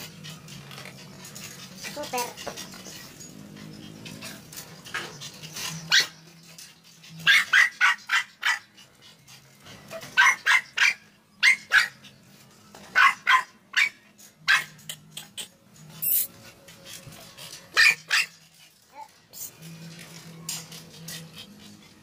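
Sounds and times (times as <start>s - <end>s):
dog barking: 7.2s - 8.7s, 10.2s - 12.0s, 13.0s - 14.8s, 17.8s - 18.3s.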